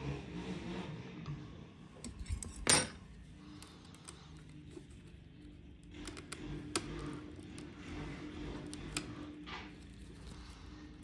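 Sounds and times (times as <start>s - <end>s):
metal parts and tools clinking: 2.0s - 3.0s.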